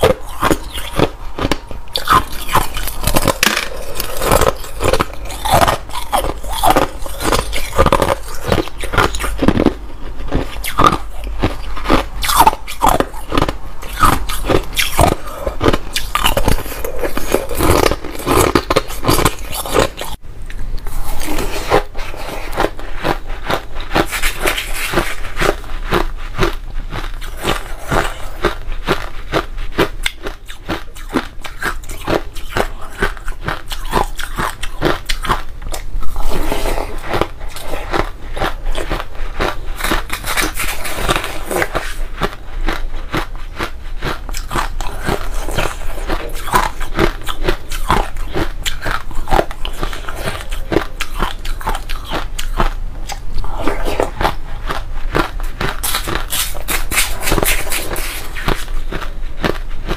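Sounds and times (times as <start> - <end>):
person chewing crushed ice: 0.0 - 59.9.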